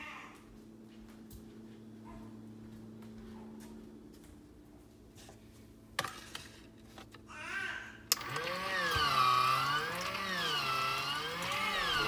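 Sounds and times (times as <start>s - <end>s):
machine motor running: 8.1s - 12.0s.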